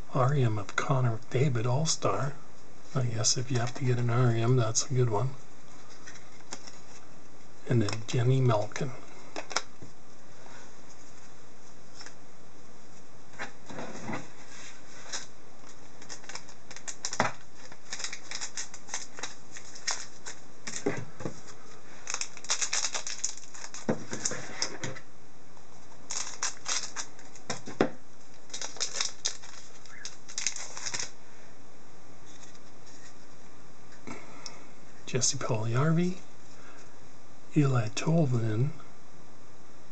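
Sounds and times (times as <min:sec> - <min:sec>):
foil wrapper crinkling and tearing: 0:15.0 - 0:20.9, 0:21.9 - 0:24.7, 0:26.0 - 0:27.7, 0:28.3 - 0:31.2.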